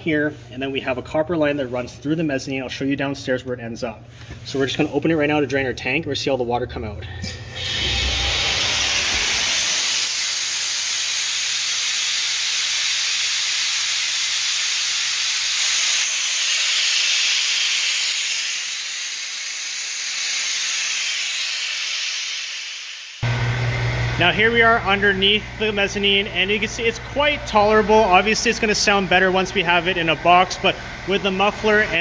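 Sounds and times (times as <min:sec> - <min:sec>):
compressed air hissing from valve: 0:07.2 - 0:23.2.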